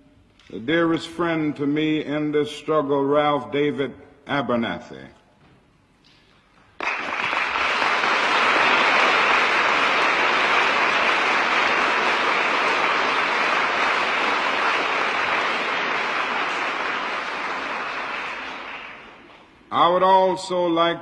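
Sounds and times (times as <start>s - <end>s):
audience applauding: 6.6s - 19.6s.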